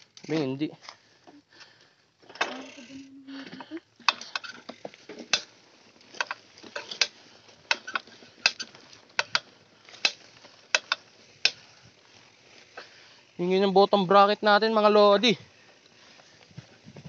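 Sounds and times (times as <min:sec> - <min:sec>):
bike bottom bracket clicking: 0:04.0 - 0:11.7.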